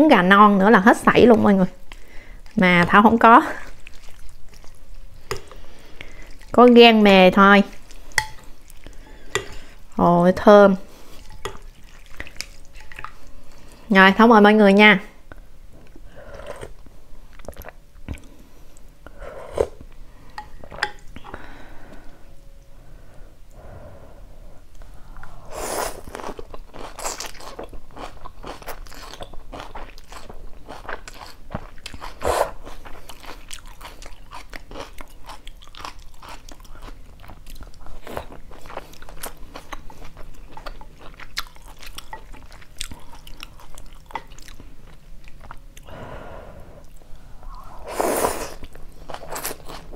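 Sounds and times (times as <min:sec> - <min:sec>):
chewing with wet smacks: 0:01.8 - 0:06.6, 0:11.1 - 0:13.3, 0:26.1 - 0:45.9, 0:48.6 - 0:49.9
person slurping noodles: 0:47.6 - 0:48.6.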